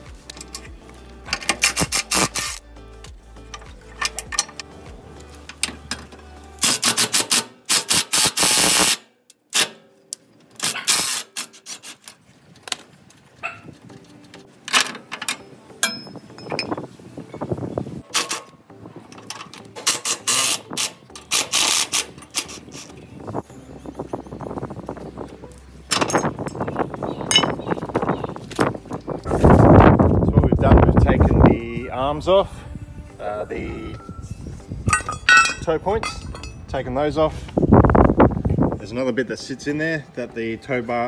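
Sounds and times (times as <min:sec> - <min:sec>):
metal clinks: 0:03.5 - 0:04.8, 0:15.2 - 0:16.8, 0:25.9 - 0:27.8, 0:33.6 - 0:36.6.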